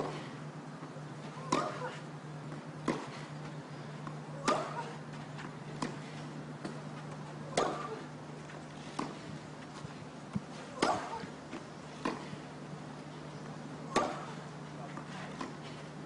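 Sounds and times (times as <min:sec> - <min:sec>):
low hum: 0:00.0 - 0:16.0
tennis racket hitting ball: 0:01.4 - 0:02.0, 0:02.8 - 0:03.2, 0:04.4 - 0:05.0, 0:07.4 - 0:08.0, 0:10.7 - 0:11.3, 0:13.9 - 0:14.4.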